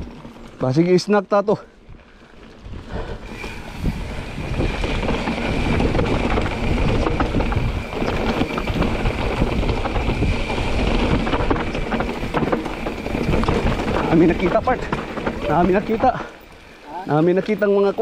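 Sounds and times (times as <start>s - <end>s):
bike rattling and knocking: 0.0s - 1.4s, 2.1s - 18.0s
wind buffeting microphone: 1.8s - 16.5s
tyres crunching over dirt and stones: 4.4s - 16.6s.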